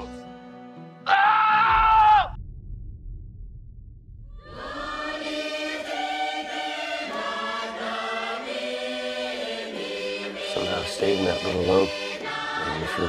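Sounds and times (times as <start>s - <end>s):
low rumble: 2.1s - 5.2s
choir singing sustained notes: 4.4s - 13.0s.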